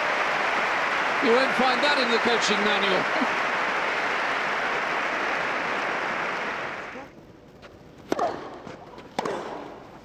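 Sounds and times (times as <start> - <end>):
crowd applauding: 0.0 - 7.0.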